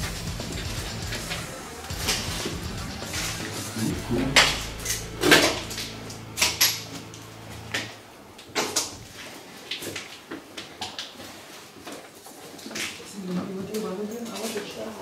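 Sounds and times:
faint low hum: 0:01.4 - 0:08.6.

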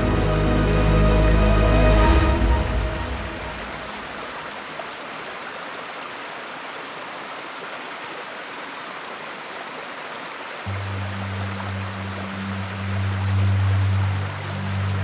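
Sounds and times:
music: 0:00.0 - 0:04.1, 0:10.7 - 0:15.0
water rushing over rocks: 0:00.0 - 0:15.0.

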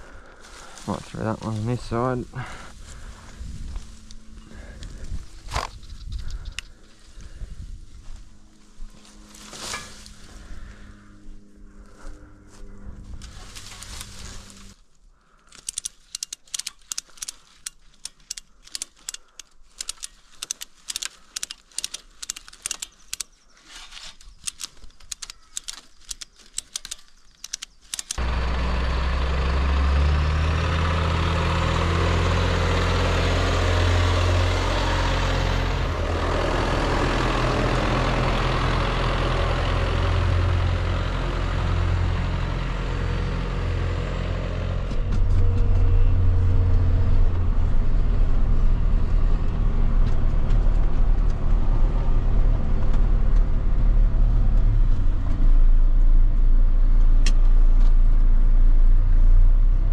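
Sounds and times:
engine running with low hum: 0:00.0 - 0:59.9
sharp clicks and snaps: 0:15.5 - 0:23.4, 0:24.1 - 0:28.2.

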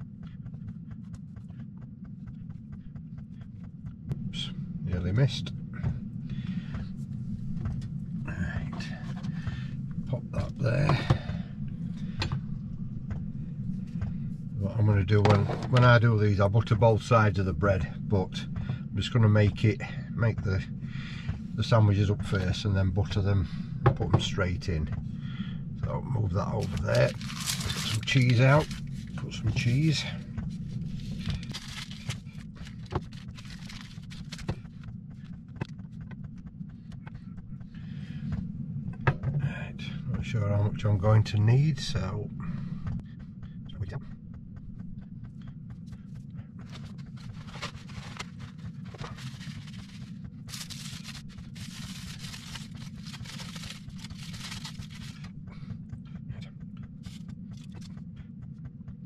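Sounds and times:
steady low hum: 0:00.0 - 0:59.0
plastic packet crinkling: 0:26.6 - 0:28.9, 0:31.0 - 0:34.6, 0:46.8 - 0:55.3.

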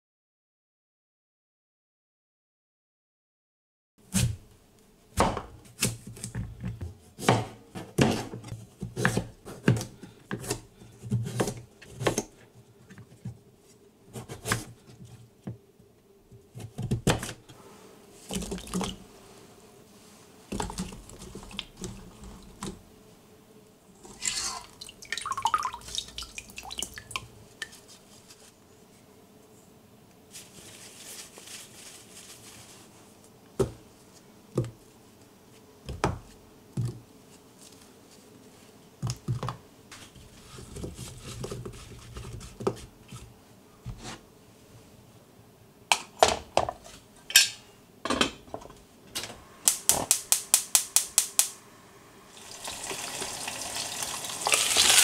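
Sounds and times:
water splashing and dripping: 0:24.2 - 0:27.3.

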